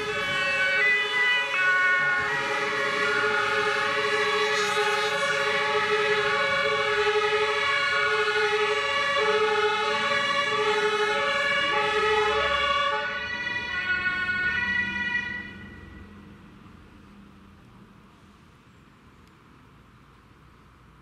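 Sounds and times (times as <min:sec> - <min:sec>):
two-tone emergency sirens: 0:00.0 - 0:16.2.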